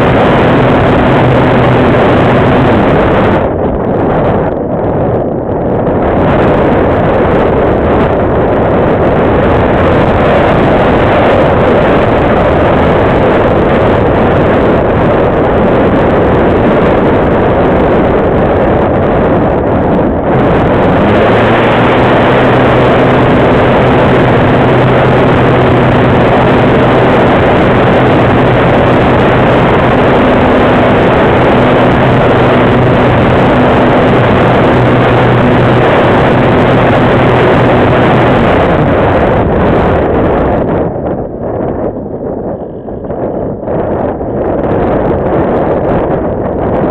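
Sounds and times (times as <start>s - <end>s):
electric motor and propeller hum: 0.0s - 46.9s
wind rushing over microphone: 0.0s - 46.9s.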